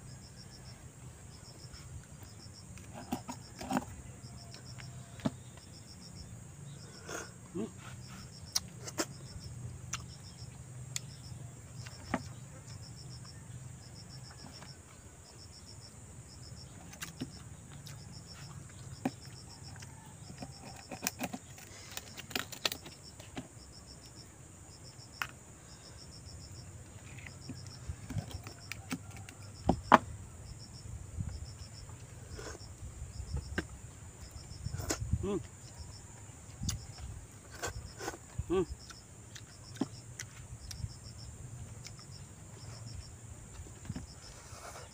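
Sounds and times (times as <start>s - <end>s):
insects chirping: 0.0s - 44.9s.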